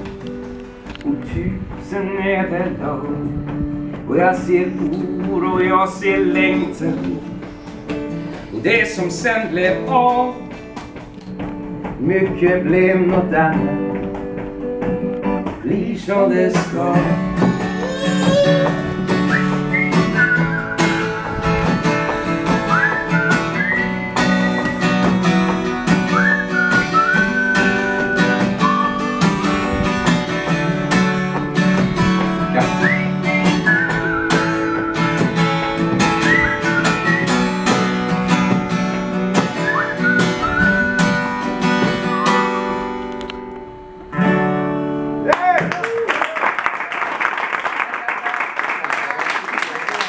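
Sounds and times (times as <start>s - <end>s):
acoustic guitar strumming: 0.0s - 45.3s
high whistled melody: 19.0s - 29.9s, 32.6s - 38.2s, 39.3s - 42.9s.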